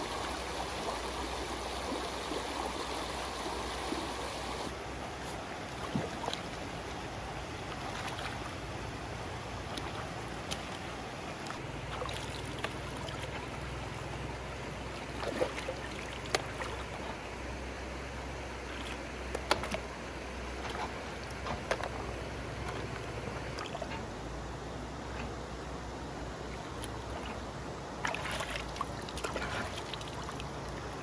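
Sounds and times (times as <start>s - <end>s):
shallow water sloshing: 0.0s - 17.3s, 26.5s - 31.0s
sharp water splashes: 5.6s - 17.1s, 28.0s - 31.0s.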